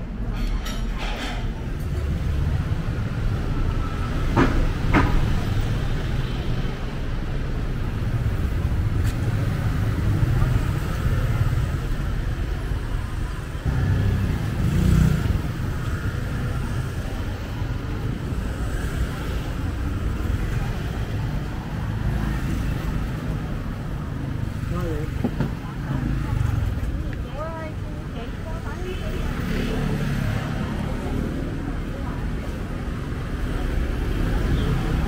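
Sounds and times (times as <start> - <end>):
road traffic rumble: 0.0 - 35.0.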